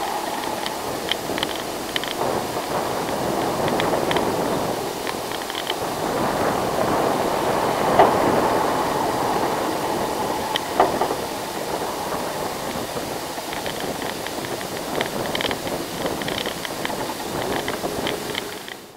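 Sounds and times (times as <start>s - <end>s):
sharp clicks: 0.0s - 2.3s
distant bus driving past: 0.0s - 14.6s.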